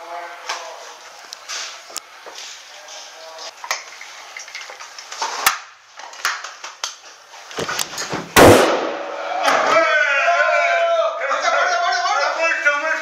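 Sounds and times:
sharp airsoft gun shot: 0:08.4 - 0:09.1.

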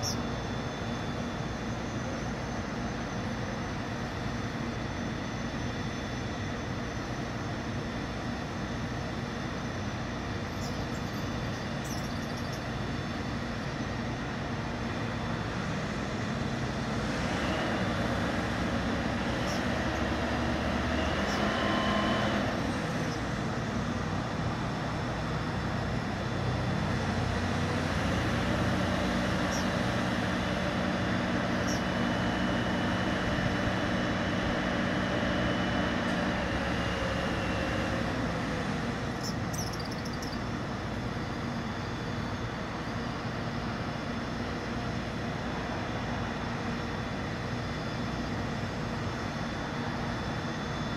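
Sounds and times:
crane engine running: 0:00.0 - 0:50.9.

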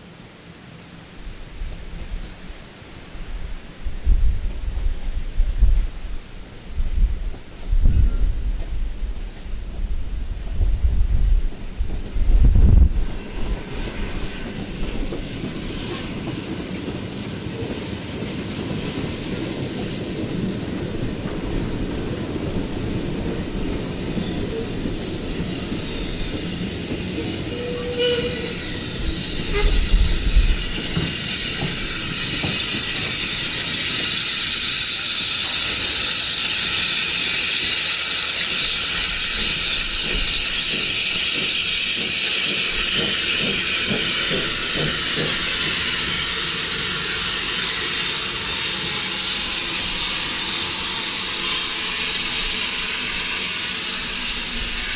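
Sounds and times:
steam locomotive hissing: 0:00.0 - 0:54.9
train wheels clicking over rail joints: 0:04.0 - 0:54.9
wheel squeal: 0:24.0 - 0:54.9.

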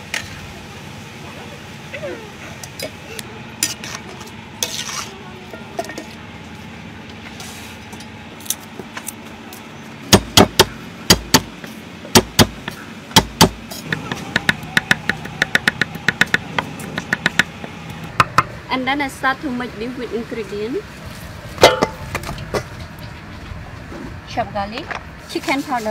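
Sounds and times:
low sizzle: 0:00.0 - 0:08.5.

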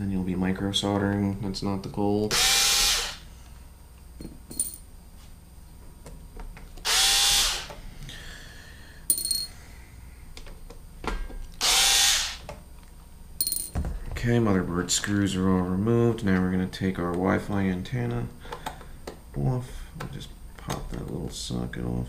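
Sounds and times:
electric screwdriver running: 0:02.3 - 0:03.2, 0:06.8 - 0:07.7, 0:11.6 - 0:12.4.

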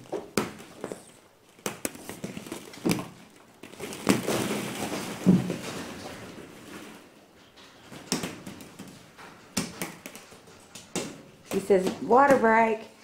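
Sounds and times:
plastic balls clattering: 0:00.0 - 0:13.0.

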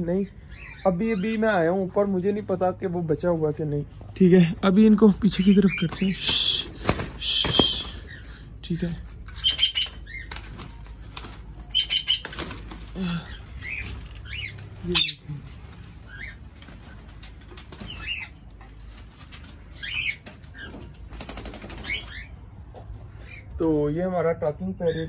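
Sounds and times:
wing flaps: 0:05.9 - 0:08.2
parrots chirping and whistling: 0:07.2 - 0:08.4, 0:09.3 - 0:11.0, 0:11.6 - 0:12.6, 0:13.2 - 0:16.5, 0:17.7 - 0:18.4, 0:19.7 - 0:20.9.

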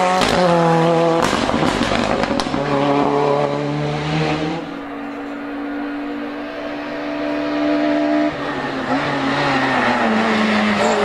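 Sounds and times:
racing car engine at high revs: 0:00.0 - 0:11.0.

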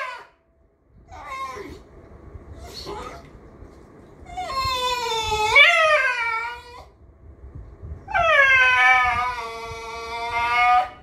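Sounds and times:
dog whining moan: 0:01.1 - 0:01.9, 0:02.6 - 0:03.3, 0:04.2 - 0:07.0, 0:08.1 - 0:11.0.

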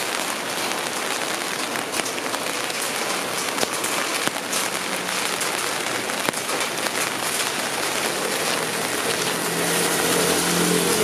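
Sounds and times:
steady rain falling: 0:00.0 - 0:11.0
vehicle engine hum: 0:07.4 - 0:11.0.

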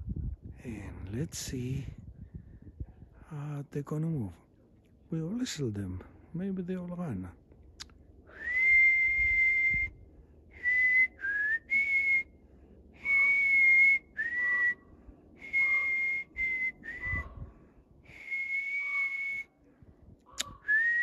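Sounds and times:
person whistling a slow tune: 0:08.3 - 0:10.0, 0:10.6 - 0:12.3, 0:13.0 - 0:14.8, 0:15.4 - 0:17.2, 0:18.1 - 0:19.5, 0:20.6 - 0:21.0.

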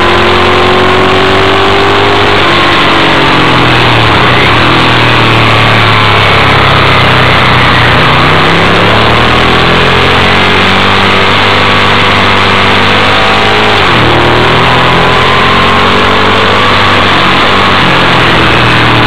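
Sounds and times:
motorcycle engine revving: 0:00.0 - 0:19.0
steady rushing noise: 0:02.2 - 0:19.0.

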